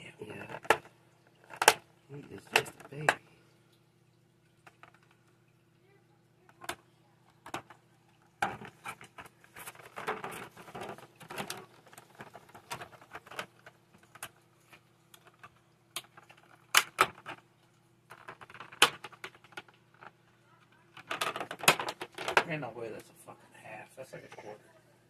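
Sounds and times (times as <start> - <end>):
plastic packaging crinkling: 8.4 - 22.5.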